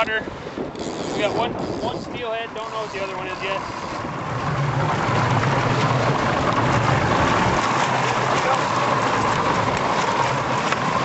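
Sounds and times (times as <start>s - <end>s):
water splashing against boat: 0.0s - 11.0s
wind on microphone: 0.0s - 11.0s
motor hum: 2.6s - 11.0s.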